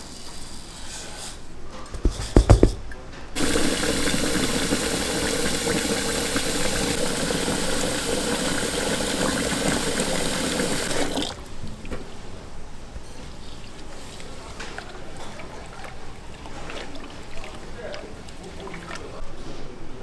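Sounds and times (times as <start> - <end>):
knocks: 1.9 - 3.0
tap water running into metal pot: 3.4 - 11.4.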